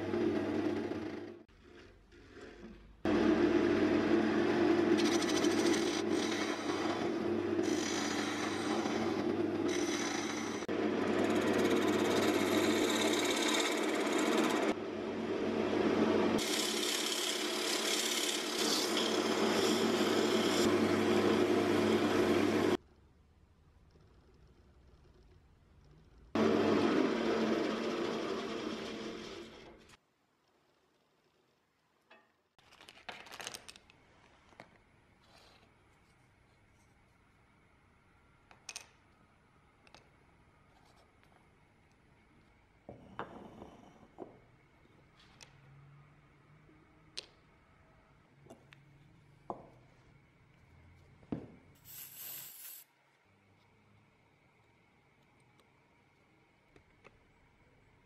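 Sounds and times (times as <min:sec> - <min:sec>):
wood lathe motor hum: 0:03.1 - 0:22.8, 0:26.4 - 0:29.8
scraper cutting spinning wood: 0:04.6 - 0:14.7, 0:15.3 - 0:22.8, 0:26.4 - 0:29.7
sandpaper on turning wood: 0:16.4 - 0:20.7.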